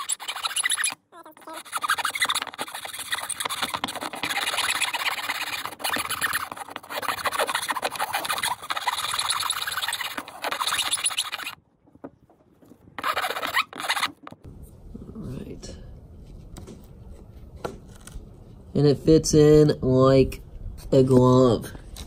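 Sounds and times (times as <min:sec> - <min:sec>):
hand file rasping on metal: 0:00.0 - 0:11.6.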